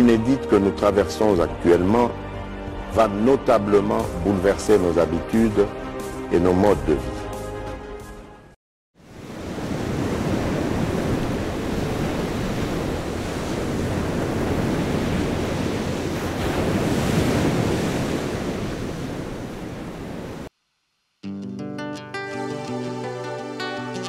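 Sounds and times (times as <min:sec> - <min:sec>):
sea surf washing ashore: 0:09.0 - 0:20.5.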